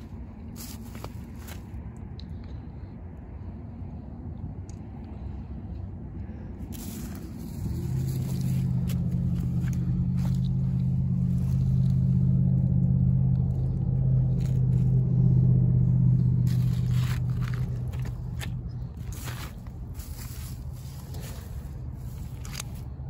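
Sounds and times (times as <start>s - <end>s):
low steady engine hum: 0.0s - 23.0s
footsteps on stones: 0.6s - 1.7s, 6.8s - 12.0s, 16.5s - 23.0s.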